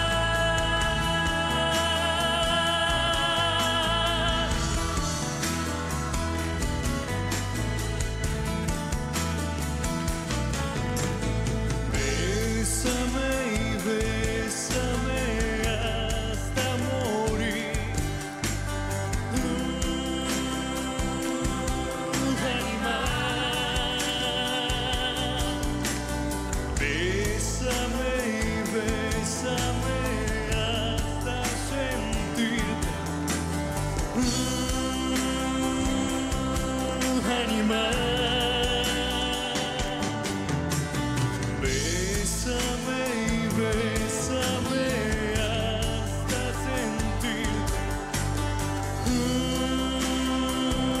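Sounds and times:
man singing: 0.0s - 6.7s, 11.8s - 51.0s
live rock band playing: 0.0s - 51.0s.

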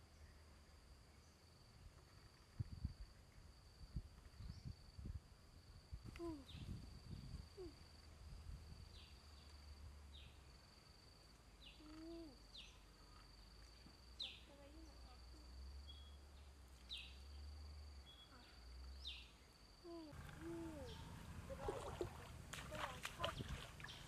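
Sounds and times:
low whistled bird calls: 20.2s - 21.3s.

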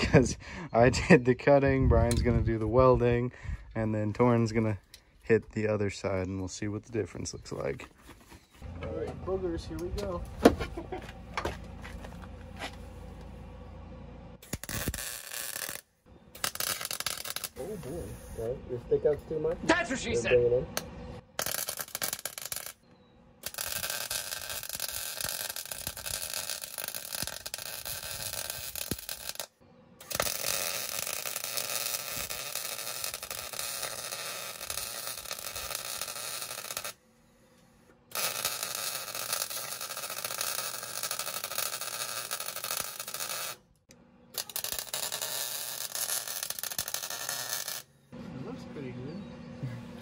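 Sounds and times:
welder arc crackling: 14.4s - 18.6s, 20.8s - 37.0s, 38.1s - 47.9s.

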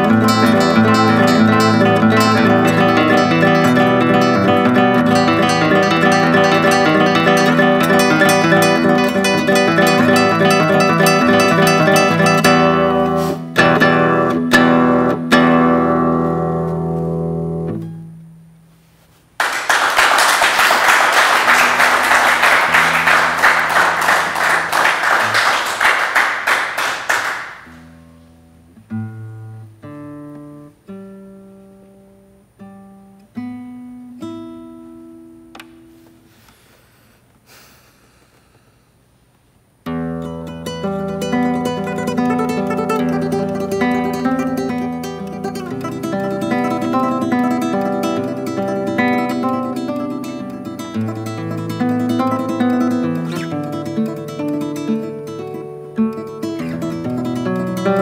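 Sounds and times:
classical guitar playing: 0.0s - 18.8s, 21.1s - 26.6s, 27.2s - 36.3s, 39.8s - 58.0s
audience applause: 19.4s - 27.7s.

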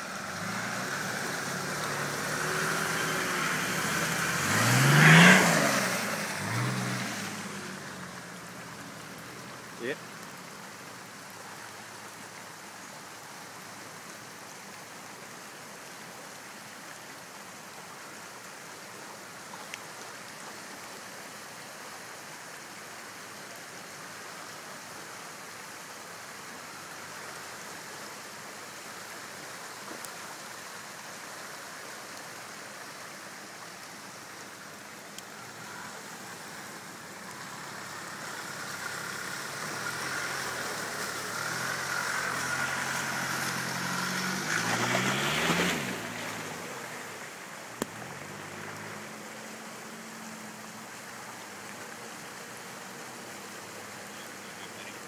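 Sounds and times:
four-wheel drive engine: 0.0s - 14.0s, 31.6s - 55.0s
flowing creek water: 0.0s - 55.0s.

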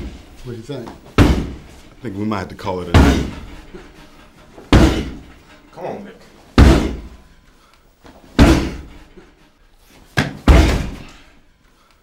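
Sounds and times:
kicks banging against door: 1.2s - 1.7s, 2.9s - 3.5s, 4.7s - 5.3s, 6.6s - 7.2s, 8.4s - 9.0s, 10.2s - 11.1s.

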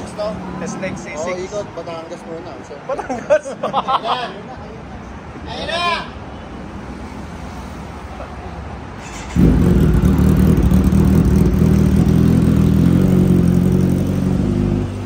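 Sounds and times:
motorcycle engine starting and idling: 9.0s - 15.0s.

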